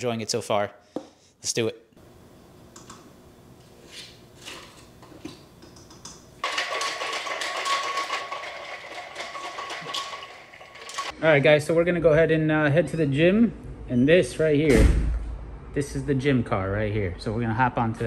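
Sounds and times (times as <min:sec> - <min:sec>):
shaker bottle rattling: 0:06.4 - 0:11.1.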